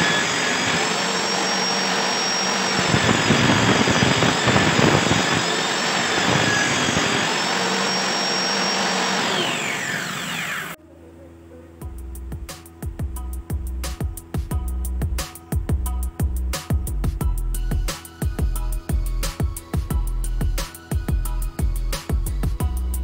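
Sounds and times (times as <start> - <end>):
saw ripping wood: 0.0 - 10.8
table saw whining: 0.0 - 10.8.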